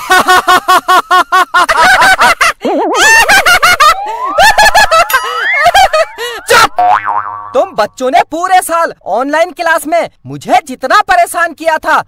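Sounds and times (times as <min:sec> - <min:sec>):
sped-up cartoon voice giggling: 0:02.6 - 0:06.8
rising and arching glides: 0:02.6 - 0:06.9
wobbling comedy tone: 0:02.6 - 0:07.8.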